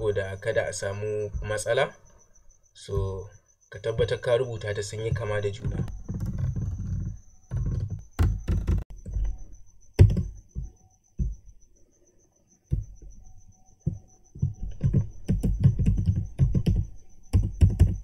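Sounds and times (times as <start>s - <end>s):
typing on computer keyboard: 14.8s - 18.0s.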